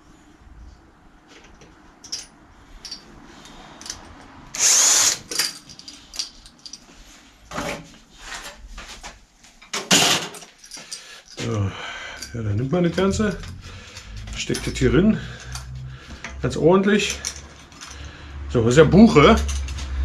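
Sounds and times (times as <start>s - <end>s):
tools clicking and knocking: 1.4s - 4.4s, 5.0s - 6.9s, 12.2s - 16.4s, 17.0s - 18.1s, 19.2s - 20.0s
cordless drill running: 4.6s - 5.2s.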